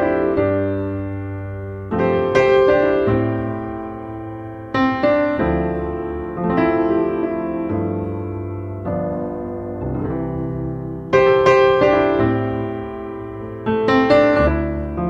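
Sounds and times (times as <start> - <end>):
piano chords: 0.0 - 15.0.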